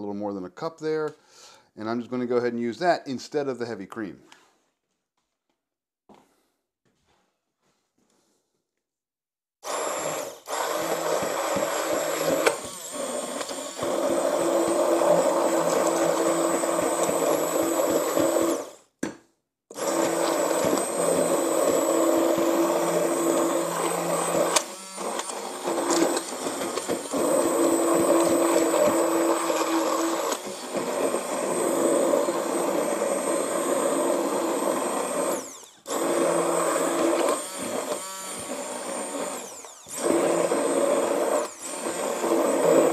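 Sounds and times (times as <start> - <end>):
immersion blender motor whining: 9.6 - 18.9, 19.7 - 42.9.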